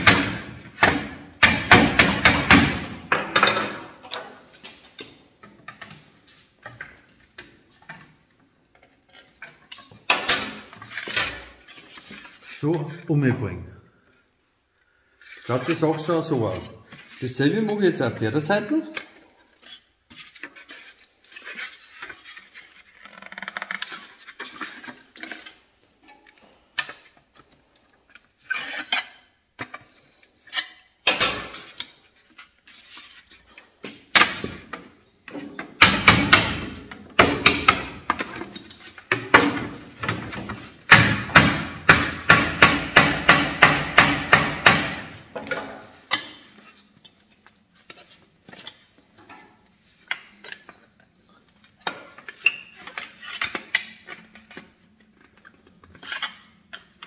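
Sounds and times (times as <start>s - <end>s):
knocks on sheet metal: 0.0s - 2.9s, 35.8s - 38.0s, 40.9s - 45.2s.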